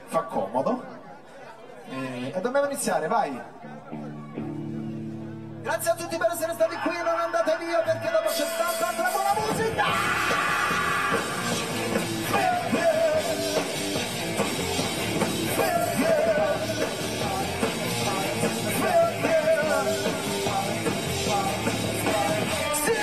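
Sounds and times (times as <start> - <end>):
bass guitar: 3.8 - 6.0, 7.9 - 23.0
man singing: 5.8 - 14.0, 15.2 - 23.0
drums: 6.8 - 23.0
live rock band playing: 8.2 - 23.0.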